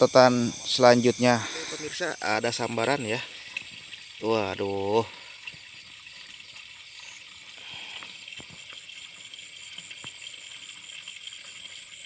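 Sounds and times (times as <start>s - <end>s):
high-pitched insect chirring: 0.0s - 7.5s.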